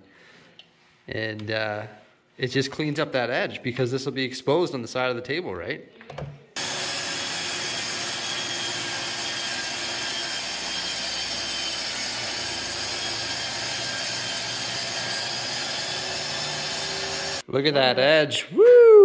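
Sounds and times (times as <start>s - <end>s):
circular saw cutting a sheet: 6.6s - 17.4s
dust extractor suction: 6.6s - 17.4s.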